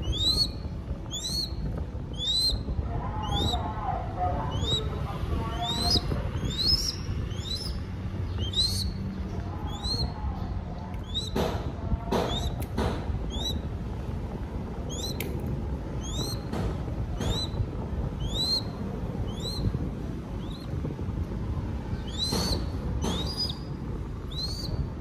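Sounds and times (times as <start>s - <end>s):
chick begging squeals: 0.0s - 3.7s, 4.4s - 7.8s, 8.4s - 9.0s, 9.6s - 10.2s, 18.2s - 19.7s.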